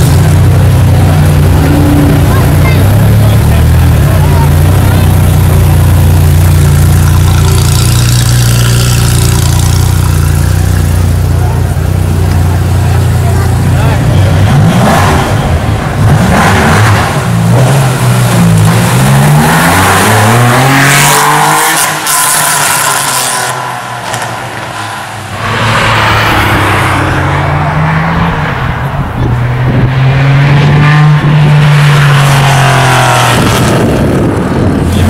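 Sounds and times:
car engine revving and accelerating: 0:12.9 - 0:35.0.

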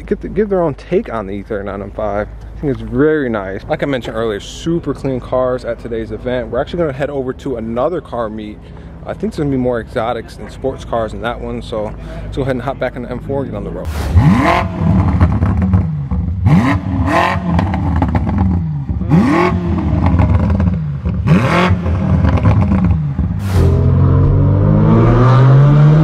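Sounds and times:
exhaust cracks: 0:13.8 - 0:26.0
car engine revving: 0:13.9 - 0:26.0
car engine accelerating from cabin: 0:14.2 - 0:26.0.

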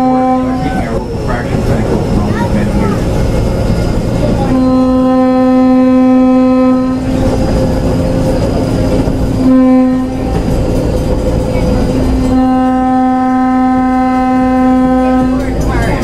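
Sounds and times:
train horn blasts: 0:00.0 - 0:02.1, 0:04.1 - 0:16.0
train rumbling on rails: 0:00.0 - 0:16.0.

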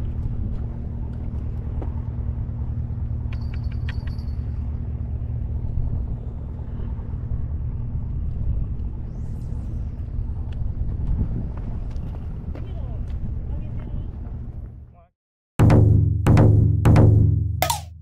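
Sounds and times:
faint steady hum: 0:00.0 - 0:11.2
wind rumbling on microphone: 0:00.0 - 0:14.9.

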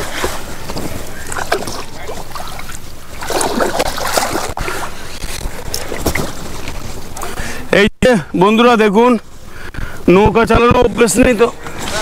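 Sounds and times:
paddle splashing in water: 0:00.0 - 0:05.0.

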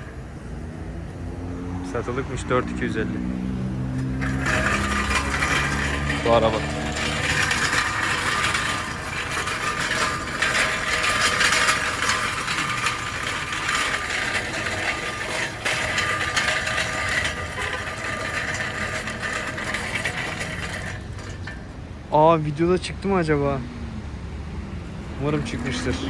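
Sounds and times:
hand cart wheels rattling: 0:03.8 - 0:22.0, 0:25.3 - 0:26.0.

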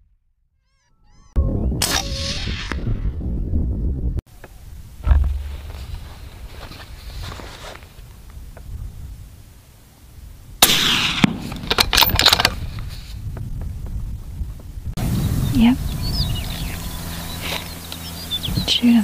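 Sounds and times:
rifle shot: 0:01.8 - 0:03.0, 0:10.6 - 0:12.6
sharp clattering: 0:10.6 - 0:12.9.

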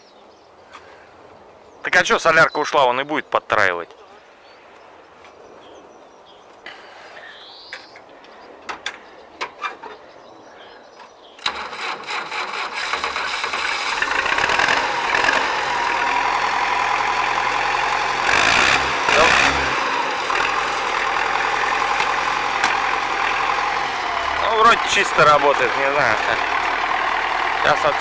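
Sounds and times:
diesel tractor engine running: 0:11.4 - 0:28.0.

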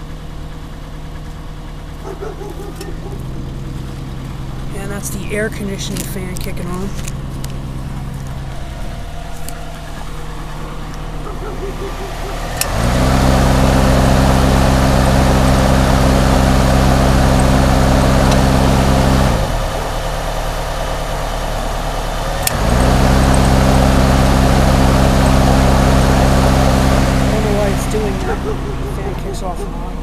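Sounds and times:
car engine idling: 0:00.0 - 0:30.0
cooling fan humming: 0:00.0 - 0:30.0
fan switch click: 0:12.1 - 0:12.9, 0:22.4 - 0:23.6.

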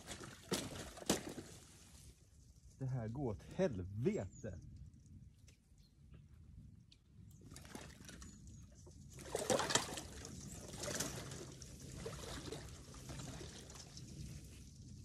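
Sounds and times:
wading splashing in water: 0:00.0 - 0:01.9, 0:07.5 - 0:08.2, 0:09.1 - 0:14.2.

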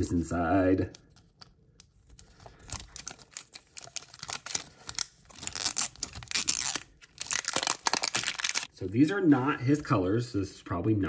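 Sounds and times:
plastic packaging tearing and crinkling: 0:01.8 - 0:08.7.

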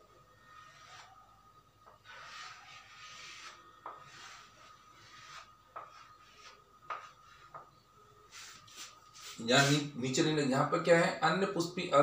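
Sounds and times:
chalk scratching on chalkboard: 0:00.5 - 0:07.7, 0:08.3 - 0:10.0
chalk tapping: 0:01.8 - 0:07.7.

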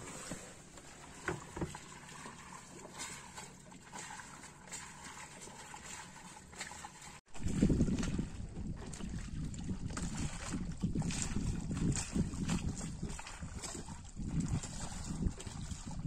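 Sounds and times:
water along a hull: 0:00.0 - 0:16.0
wind buffeting microphone: 0:07.3 - 0:16.0.

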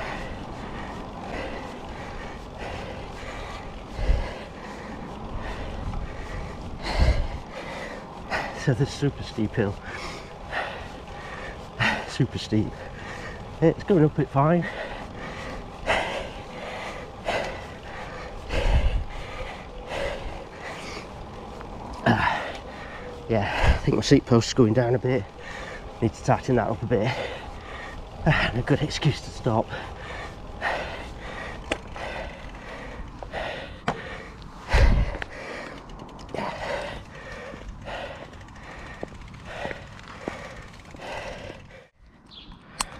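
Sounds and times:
person breathing hard: 0:00.0 - 0:13.6, 0:14.4 - 0:24.0, 0:24.8 - 0:26.0, 0:26.6 - 0:42.0
sharp clicks: 0:42.5 - 0:42.9.

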